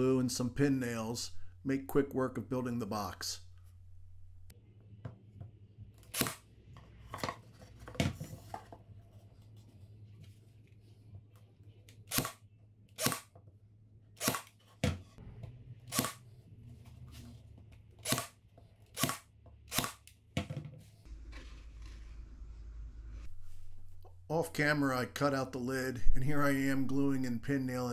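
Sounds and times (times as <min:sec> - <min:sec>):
pin nailer firing: 0:06.1 - 0:06.4, 0:12.1 - 0:12.4, 0:13.0 - 0:13.3, 0:14.2 - 0:14.5, 0:15.9 - 0:16.2, 0:18.0 - 0:18.3, 0:19.0 - 0:20.1.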